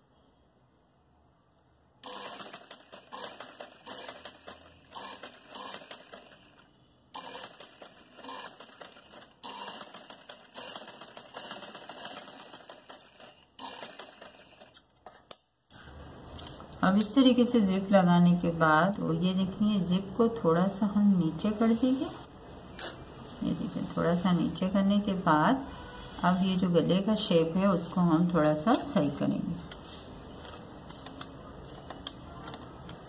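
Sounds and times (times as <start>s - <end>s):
sewing machine running: 2.0s - 14.8s.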